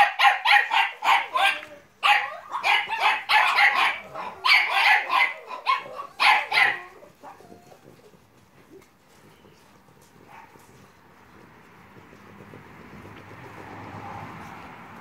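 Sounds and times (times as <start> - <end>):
puppies barking: 0.0 - 8.0, 10.1 - 10.8
faint rustling: 5.4 - 13.6.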